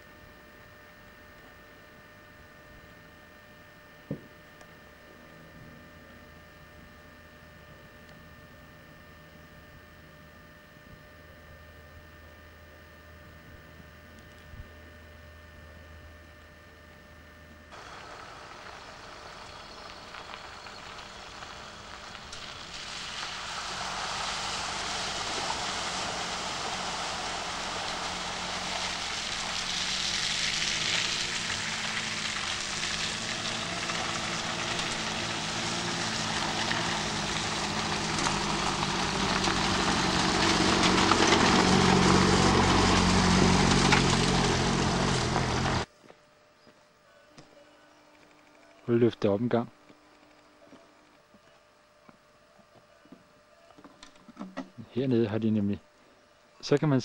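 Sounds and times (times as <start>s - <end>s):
vehicle engine climbing: 17.7s - 45.9s.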